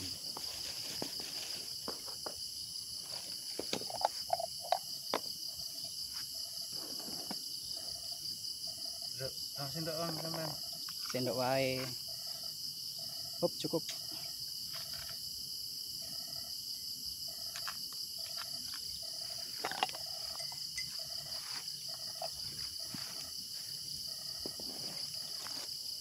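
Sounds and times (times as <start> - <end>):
crickets trilling: 0.0 - 26.0
frog calling: 17.3 - 23.3.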